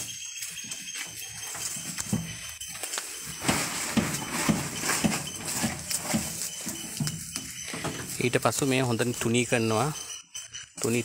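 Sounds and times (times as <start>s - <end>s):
metal wheelbarrow clattering: 0.0s - 9.9s
hollow knocks: 3.4s - 8.1s.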